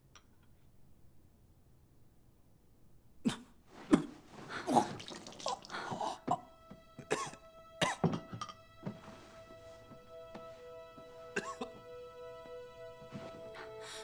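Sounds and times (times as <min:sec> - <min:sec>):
man retching and vomiting: 0:03.3 - 0:06.5.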